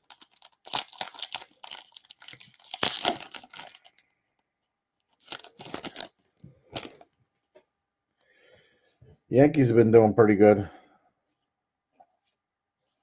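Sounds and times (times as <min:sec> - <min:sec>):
foil wrappers crinkling and tearing: 0:00.0 - 0:04.1, 0:05.1 - 0:07.1.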